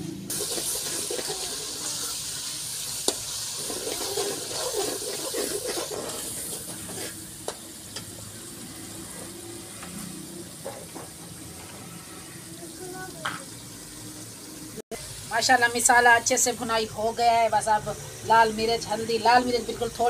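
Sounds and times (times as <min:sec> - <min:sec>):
sauce sizzling in oil: 0:00.0 - 0:20.0
ladle stirring and scraping: 0:00.3 - 0:02.2, 0:02.9 - 0:08.1.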